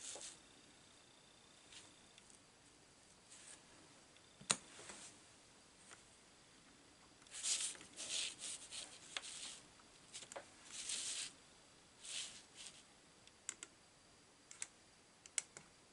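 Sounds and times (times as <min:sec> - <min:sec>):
paper towel rustling and scraping: 0:07.4 - 0:11.4, 0:12.0 - 0:12.8.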